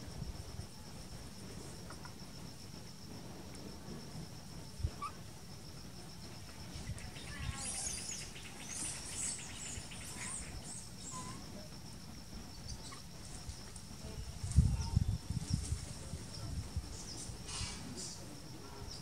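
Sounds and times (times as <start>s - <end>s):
pulsed insect chirring: 4.4s - 19.0s.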